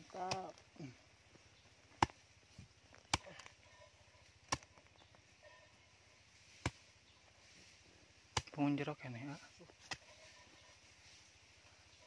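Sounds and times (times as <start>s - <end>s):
hand hoe chopping into soil: 0.0s - 0.8s, 1.8s - 5.2s, 6.4s - 6.9s, 8.2s - 8.7s, 9.7s - 10.4s.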